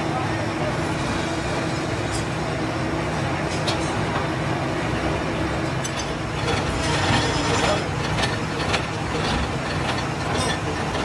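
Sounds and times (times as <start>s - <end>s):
machine tool drone: 5.1s - 11.0s.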